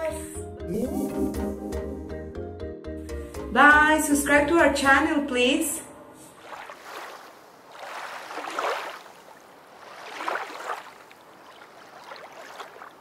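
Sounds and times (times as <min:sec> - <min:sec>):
rushing water: 0:06.3 - 0:13.0.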